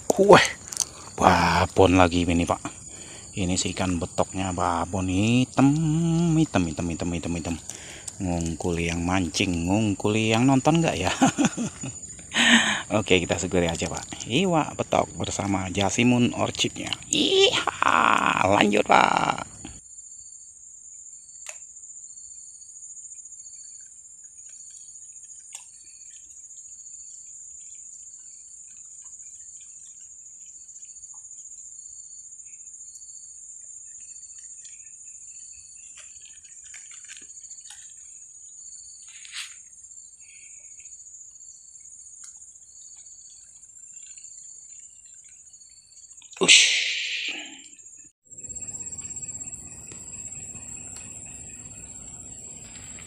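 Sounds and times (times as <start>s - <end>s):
faint chirps: 0.0s - 19.8s, 38.2s - 53.0s
insects droning: 0.0s - 53.0s
repeating short chirp: 46.4s - 47.7s.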